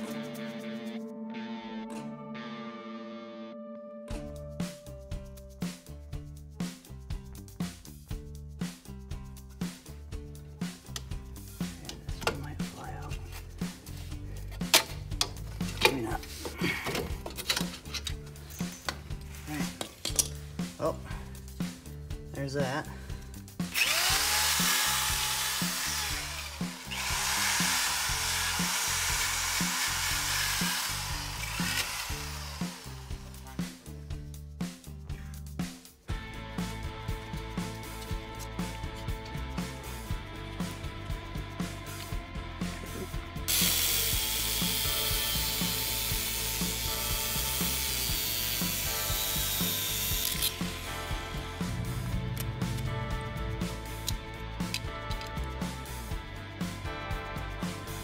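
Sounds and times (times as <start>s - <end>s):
background music with beat: 0.0s - 3.4s, 4.0s - 28.8s, 30.7s - 58.0s
power tool motor whine: 23.7s - 33.2s, 43.5s - 51.0s
angle grinder cutting metal: 23.7s - 33.4s, 43.5s - 54.2s.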